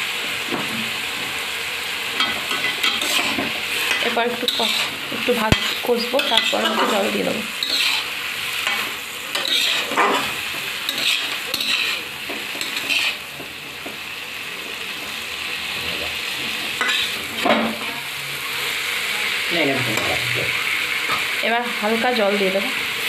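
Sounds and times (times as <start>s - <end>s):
food sizzling in oil: 0.0s - 23.0s
spatula scraping a pan: 2.2s - 14.0s, 16.4s - 18.0s.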